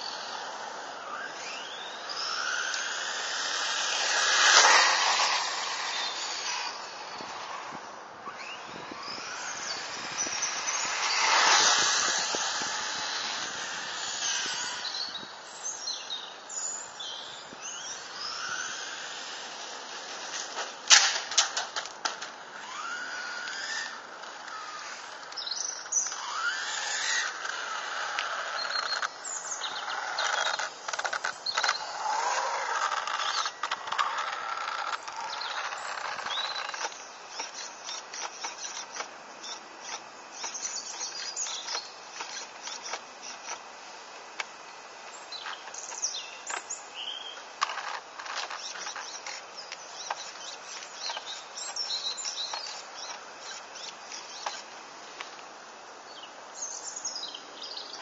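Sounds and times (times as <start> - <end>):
electric motor whining: 0.0 - 15.3, 22.5 - 43.6
faint birds chirping: 0.0 - 20.8, 22.0 - 43.7, 44.6 - 58.0
tyres crackling on asphalt: 0.0 - 56.5.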